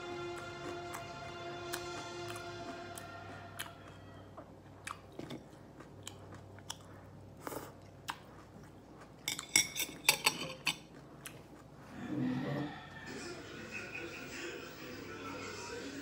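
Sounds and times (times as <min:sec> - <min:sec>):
person chewing and crunching: 0:00.0 - 0:12.0.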